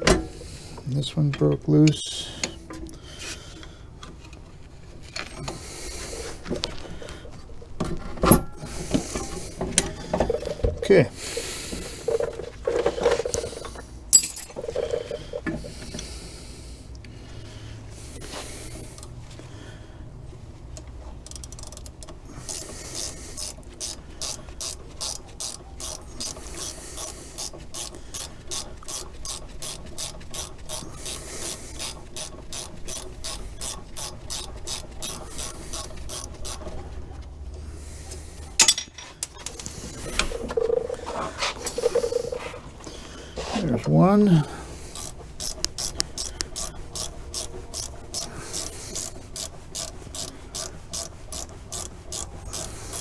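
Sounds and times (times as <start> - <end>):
ratchet wrench clicking: 21.2 - 36.8, 44.9 - 53.0.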